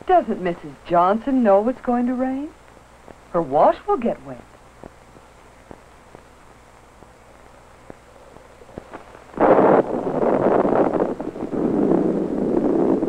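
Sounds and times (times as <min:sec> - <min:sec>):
faint hiss with crackles: 0:00.0 - 0:13.0
loud rush of wind: 0:08.8 - 0:13.0.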